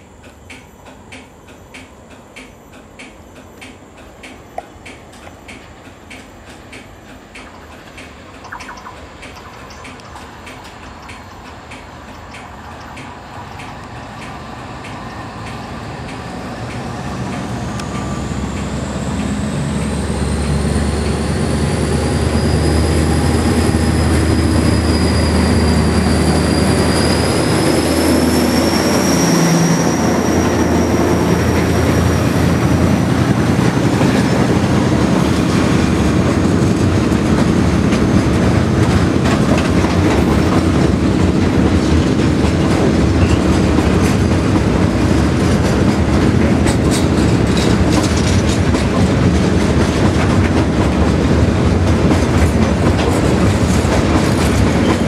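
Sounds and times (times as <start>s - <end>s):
diesel locomotive engine rumble: 0.0s - 55.0s
high wheel squeal: 17.9s - 33.8s
freight wagons rattling over rail joints: 31.0s - 55.0s.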